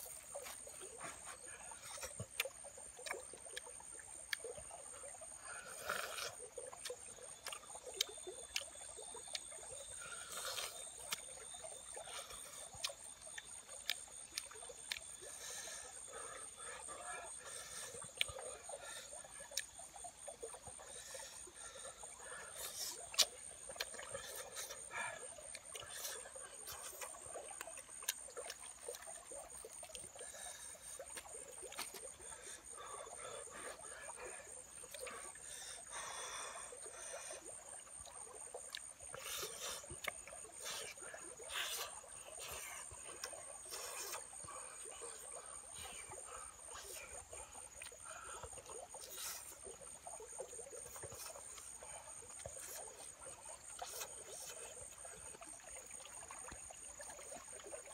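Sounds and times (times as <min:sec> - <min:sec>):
chewing and lip smacking: 0:25.5 - 0:29.1, 0:53.8 - 0:54.8.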